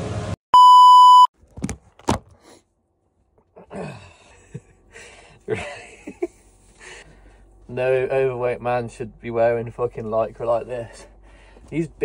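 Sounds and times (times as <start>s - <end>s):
test-card beep: 0.6s - 1.3s
man laughing and groaning: 3.6s - 7.0s.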